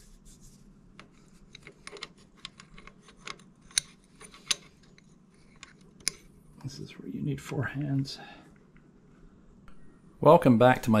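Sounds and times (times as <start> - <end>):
metal clicks and taps: 1.0 - 6.3.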